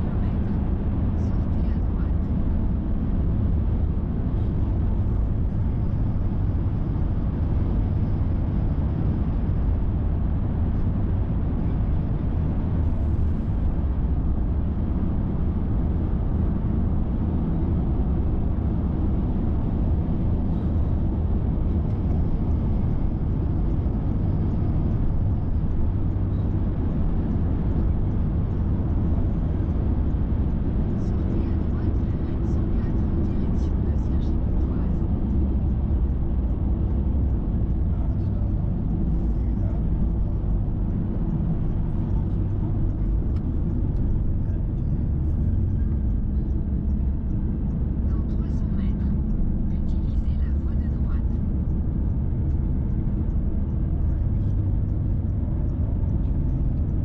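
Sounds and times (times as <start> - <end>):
car cabin road rumble: 0.0 - 57.0.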